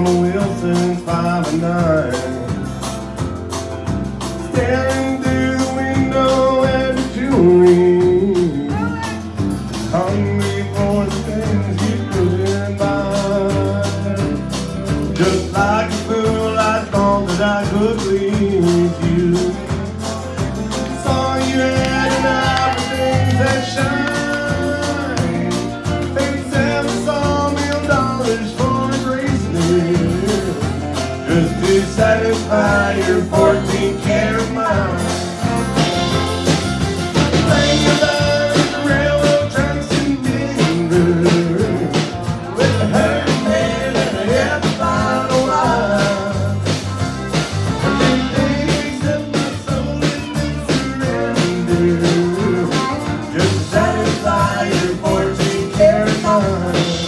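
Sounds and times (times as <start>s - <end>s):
country band playing live: 0.0s - 57.0s.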